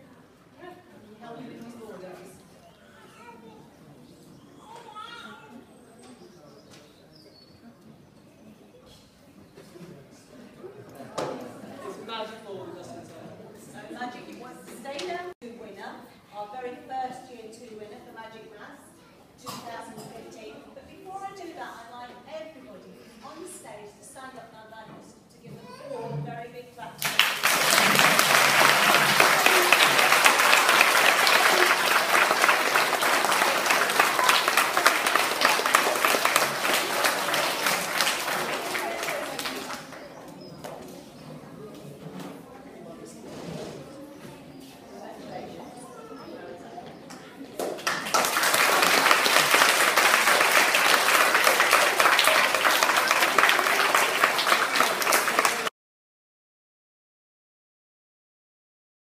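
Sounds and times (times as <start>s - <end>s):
children's voices: 2.6s - 5.8s, 25.5s - 26.2s, 27.4s - 41.6s, 43.9s - 55.7s
audience clapping in a hall: 27.0s - 40.1s, 47.7s - 55.7s.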